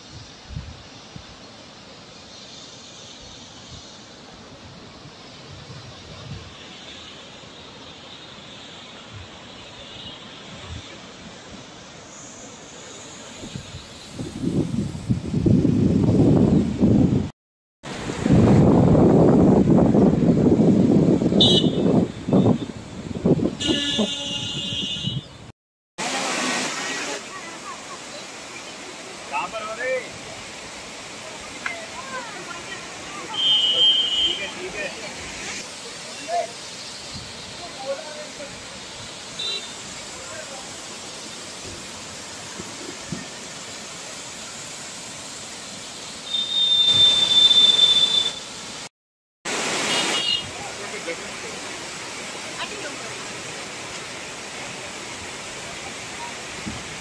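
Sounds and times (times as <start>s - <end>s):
wind buffeting microphone: 13.5s - 17.3s, 18.0s - 25.4s
high-pitched horn-like tone: 23.6s - 25.3s
waterfall rushing: 26.0s - 48.9s, 49.5s - 57.0s
high steady whistling tone: 46.2s - 48.5s.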